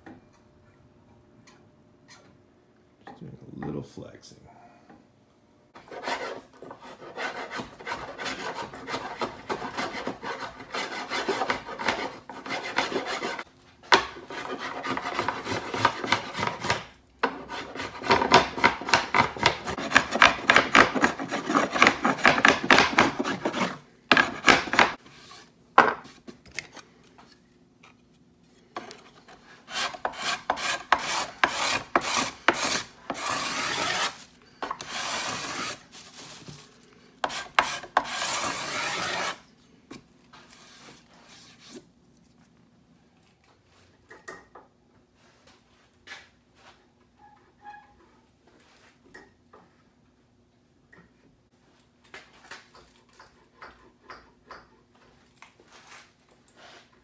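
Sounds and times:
rasp on wood strokes: 5.8 - 13.4, 14.0 - 25.4, 29.6 - 35.8, 37.2 - 39.4.

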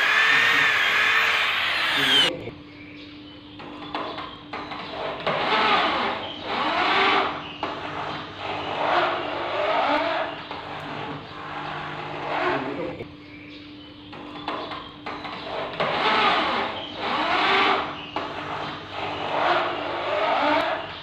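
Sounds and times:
electric drill driving screws: 0.0 - 2.3.

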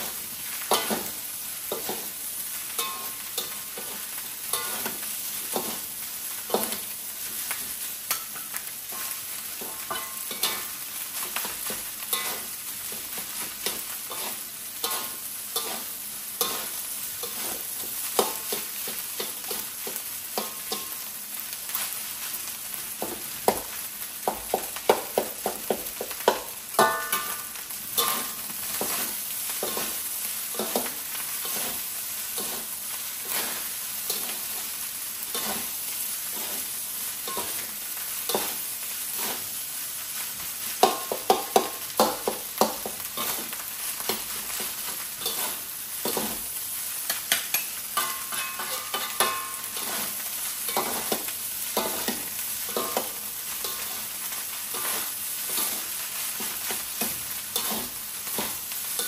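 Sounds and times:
rice sizzling in a pan: 0.0 - 59.0
metal spatula knocking on pan: 9.6 - 10.6, 24.3 - 27.4, 40.8 - 43.0.

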